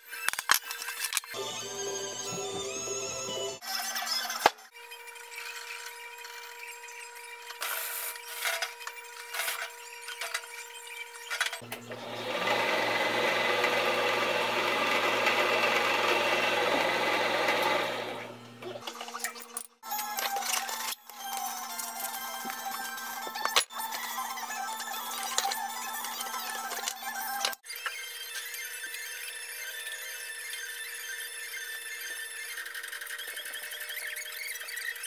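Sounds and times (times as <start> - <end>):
drill press motor humming: 11.6 - 18.8.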